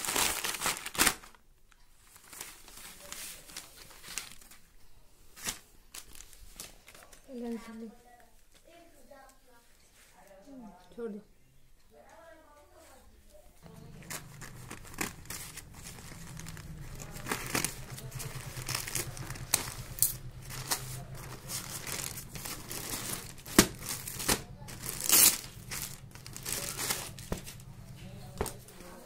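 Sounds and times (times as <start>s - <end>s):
plastic mailer crinkling: 0.0s - 1.4s, 13.6s - 28.9s
plastic-wrapped package crinkling: 0.0s - 4.7s, 5.3s - 7.8s, 13.6s - 29.0s.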